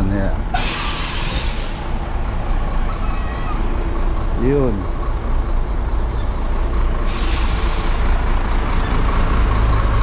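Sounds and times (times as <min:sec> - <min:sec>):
road noise: 0:00.0 - 0:10.0
vehicle engine rumbling: 0:00.0 - 0:10.0
sharp hiss: 0:00.6 - 0:02.0, 0:07.1 - 0:08.2.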